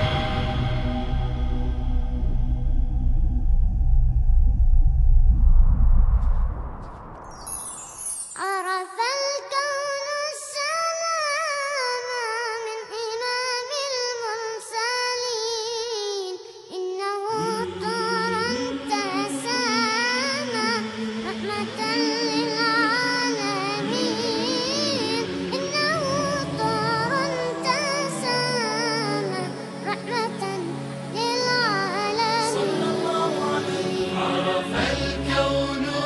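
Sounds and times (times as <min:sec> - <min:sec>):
low sustained backing voices: 0:00.0 - 0:03.3, 0:17.3 - 0:36.0
high solo voice singing: 0:08.4 - 0:36.0.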